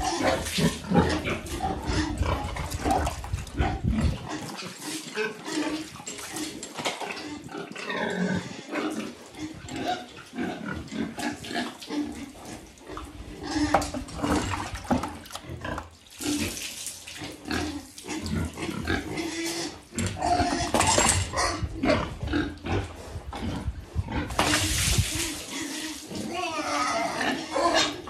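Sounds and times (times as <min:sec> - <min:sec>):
water splashing: 0:14.1 - 0:18.7, 0:24.3 - 0:27.2
pig grunting: 0:25.3 - 0:28.0.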